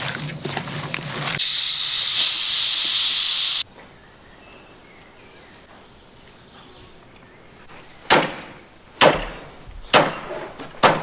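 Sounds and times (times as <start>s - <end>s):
loud steady hiss: 1.4s - 3.7s.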